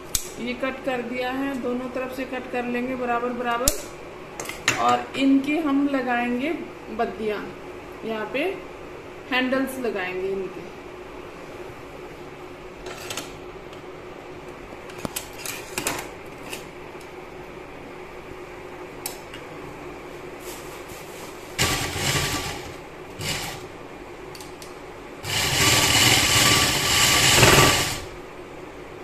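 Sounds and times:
sewing machine stitching: 0:21.6 - 0:23.6, 0:25.2 - 0:28.1.

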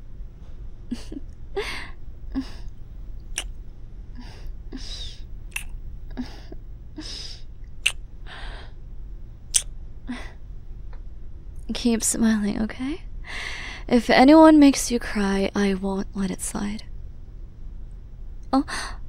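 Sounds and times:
lip smack: 0:03.2 - 0:03.6, 0:05.5 - 0:05.8, 0:07.8 - 0:08.0.

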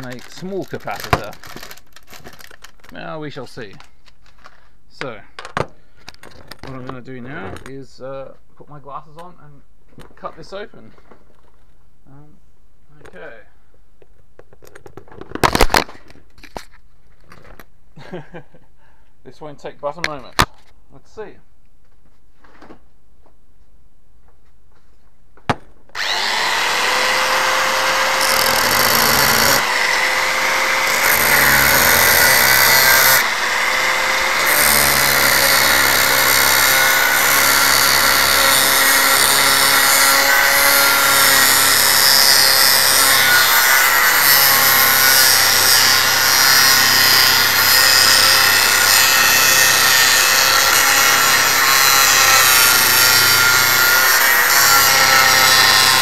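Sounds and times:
angle grinder cutting metal: 0:26.0 - 0:56.0.

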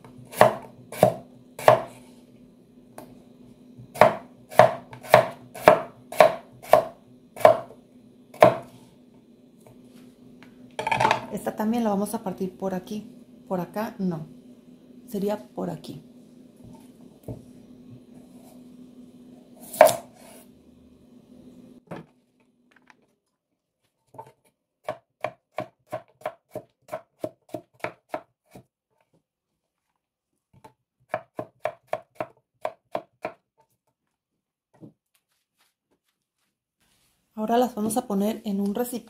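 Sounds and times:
low steady hum: 0:00.0 - 0:22.7
knife chopping on cutting board: 0:00.3 - 0:02.0, 0:03.9 - 0:07.8, 0:08.4 - 0:08.8, 0:19.6 - 0:20.2, 0:24.2 - 0:28.7, 0:30.6 - 0:33.4.

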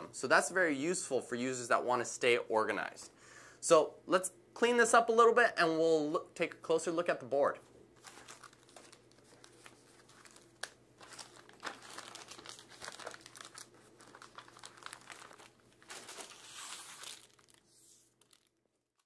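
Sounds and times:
plastic and paper crinkling: 0:08.0 - 0:19.0.

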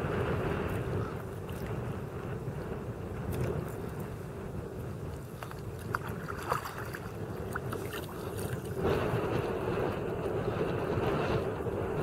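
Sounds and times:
wind rushing on microphone: 0:00.0 - 0:12.0
water lapping: 0:00.4 - 0:09.5
water splashing against kayak hull: 0:05.1 - 0:09.5.

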